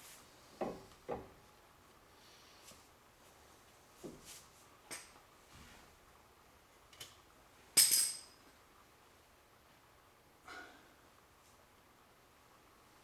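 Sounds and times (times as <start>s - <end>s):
metal tools clinking: 7.8s - 8.4s.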